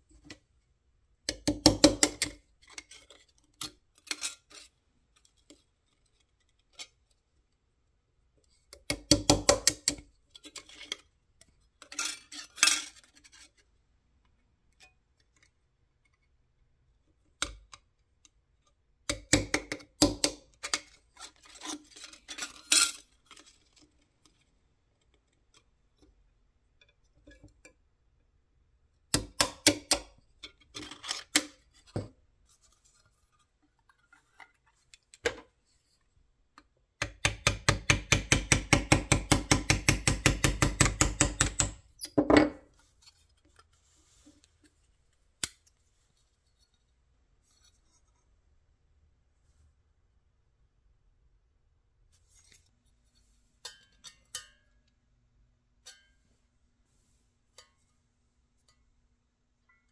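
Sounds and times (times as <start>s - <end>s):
hammer tapping steel punch: 1.3s - 2.3s, 8.8s - 10.0s, 19.1s - 20.4s, 29.1s - 30.1s, 37.0s - 42.6s.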